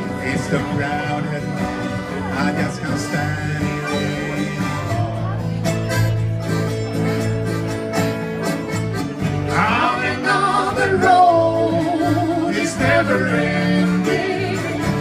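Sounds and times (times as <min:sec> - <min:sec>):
accordion: 0:00.0 - 0:15.0
live band playing: 0:00.0 - 0:15.0
person singing: 0:09.5 - 0:15.0.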